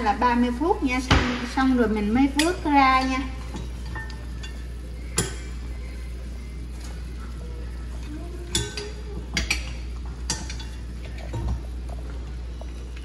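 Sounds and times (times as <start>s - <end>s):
steady low hum: 0.0s - 13.0s
utensil clinking on pot: 8.5s - 11.7s.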